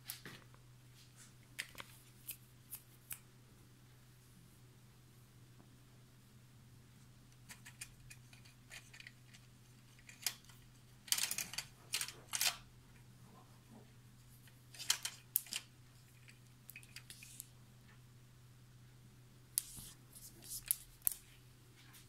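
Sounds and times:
faint steady hum: 0.0s - 22.0s
cat batting toy rustles and clicks: 7.4s - 12.6s, 13.3s - 17.5s.

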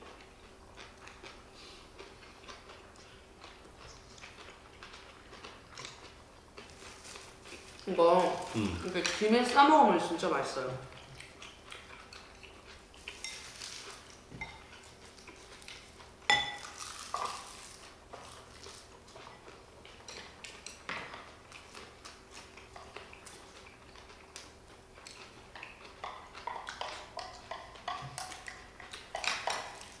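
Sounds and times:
spoons and chopsticks clinking on bowls: 13.1s - 13.6s, 16.3s - 17.4s.

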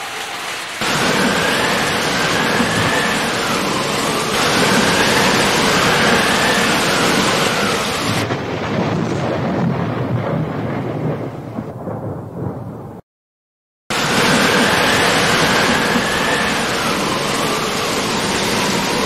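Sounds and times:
sea water splashing: 0.0s - 8.3s, 13.9s - 19.0s
jet ski engine whine: 0.0s - 8.4s, 13.9s - 19.0s
wind rumble on microphone: 0.8s - 13.0s.

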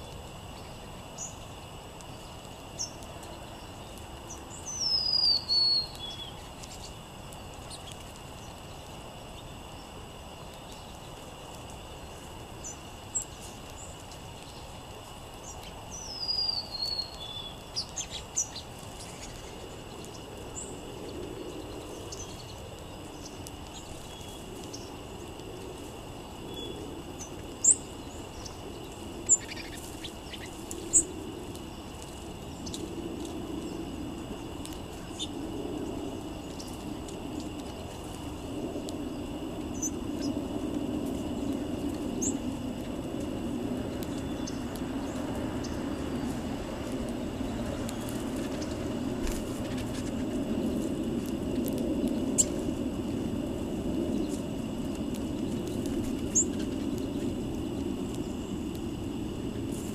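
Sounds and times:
songbird whistled song: 2.1s - 7.0s, 15.4s - 25.0s, 26.5s - 31.1s, 43.9s - 46.4s.

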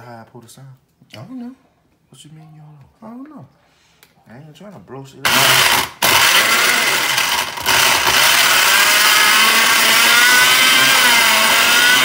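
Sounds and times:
blender motor whine: 5.3s - 12.0s.

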